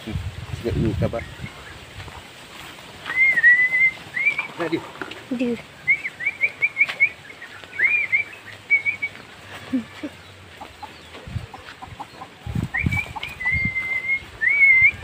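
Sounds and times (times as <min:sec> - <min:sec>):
person whistling: 0:03.1 - 0:04.5, 0:07.8 - 0:09.2, 0:12.8 - 0:15.0.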